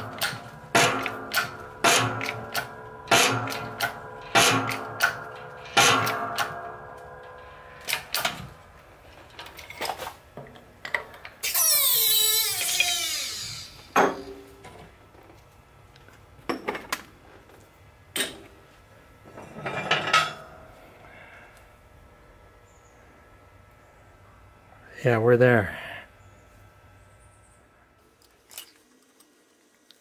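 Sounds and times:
loud harsh pressing noise: 0.0 - 8.6
clatter of metal: 0.0 - 10.2, 19.3 - 20.5.

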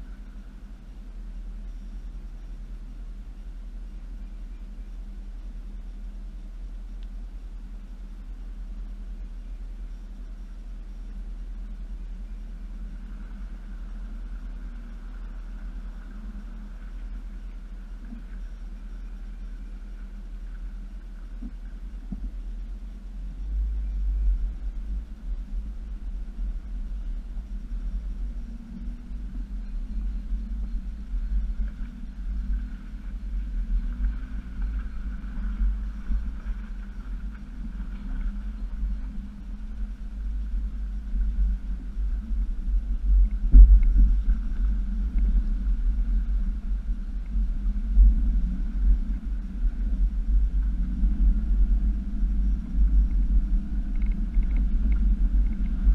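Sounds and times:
vehicle engine deep rumble: 0.0 - 55.9.

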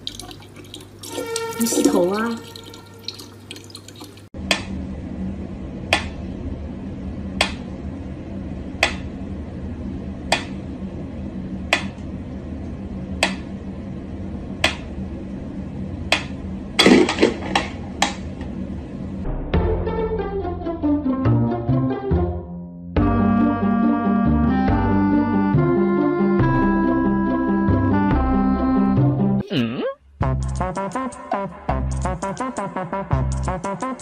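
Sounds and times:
low steady hum: 0.0 - 19.3.

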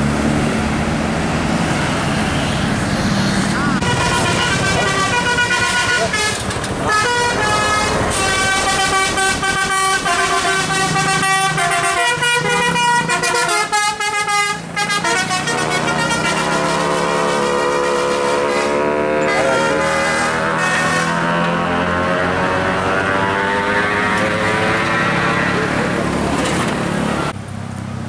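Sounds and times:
bus engine humming: 0.0 - 28.0
musical air horns playing tune: 3.6 - 25.9
rising drone: 16.5 - 27.3.

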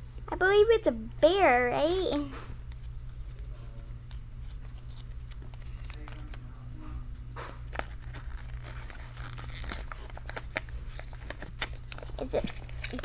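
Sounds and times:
steady low hum: 0.0 - 13.0
packaging crinkling and tearing: 2.7 - 6.7, 7.5 - 13.0.

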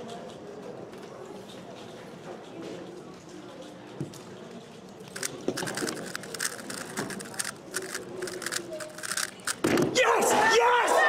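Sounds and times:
puzzle cube layers clacking: 5.1 - 9.7.

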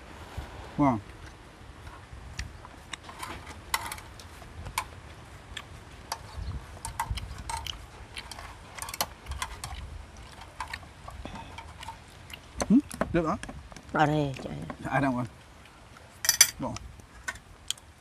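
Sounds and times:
chewing: 2.3 - 13.0.

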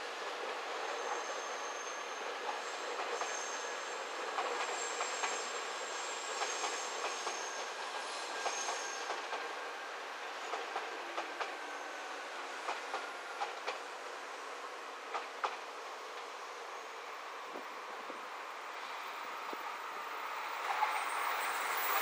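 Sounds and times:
train running on rails: 0.0 - 22.0
high wheel squeal: 19.9 - 22.0.

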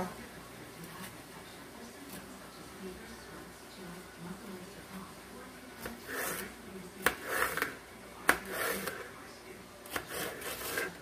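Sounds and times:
knife slicing pepper: 5.8 - 9.0, 9.9 - 11.0.

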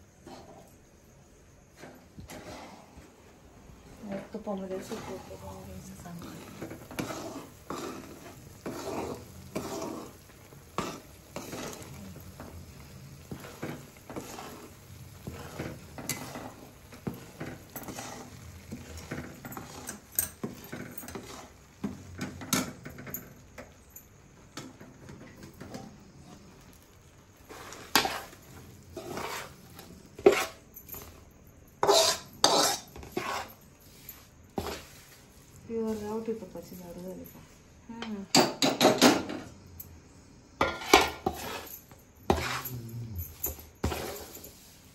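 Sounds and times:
metal spatula scraping a pan: 0.2 - 0.7, 1.8 - 3.1, 4.0 - 23.2, 27.4 - 31.2, 31.8 - 36.4, 40.6 - 42.7, 43.3 - 44.9
spatula clinking against pan: 31.8 - 33.4.

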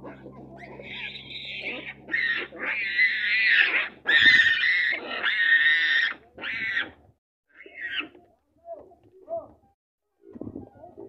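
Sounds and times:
baboons screaming: 0.0 - 8.2.

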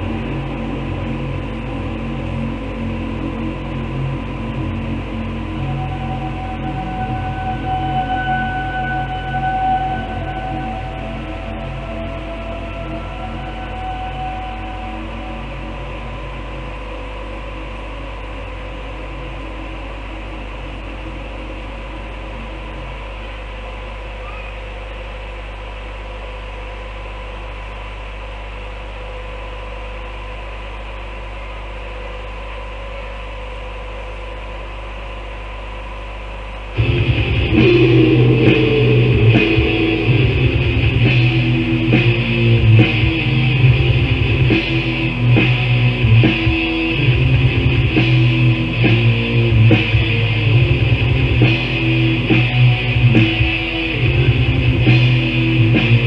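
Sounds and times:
low hum: 0.0 - 56.0
death metal band playing: 4.8 - 15.7, 36.8 - 56.0.

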